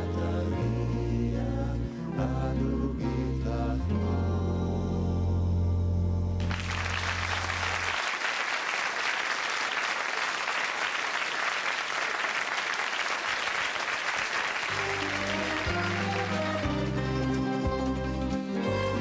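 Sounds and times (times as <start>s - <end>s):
studio audience applauding: 6.4s - 18.3s
folk ensemble low chord: 14.7s - 19.0s.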